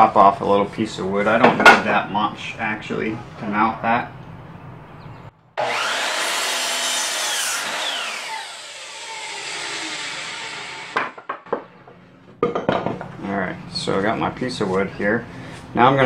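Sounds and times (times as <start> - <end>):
saw blade spinning down: 5.6 - 11.1
miter saw cutting wood: 5.6 - 11.3.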